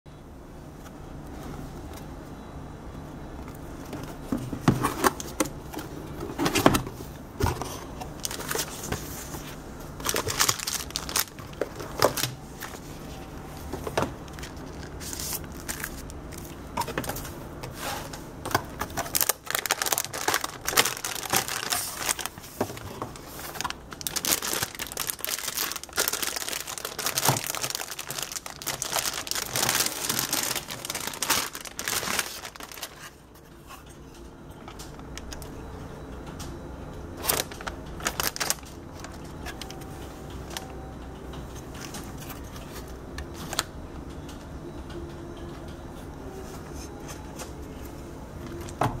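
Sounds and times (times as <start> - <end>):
packaging crinkling: 8.2 - 9.2, 9.9 - 12.8, 14.2 - 17.2, 18.5 - 33.2, 37.2 - 39.9.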